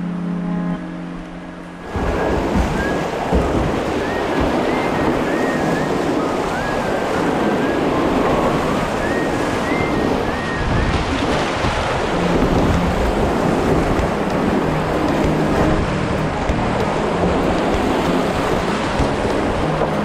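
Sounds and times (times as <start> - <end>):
whitewater rapid rushing: 0.0 - 20.0.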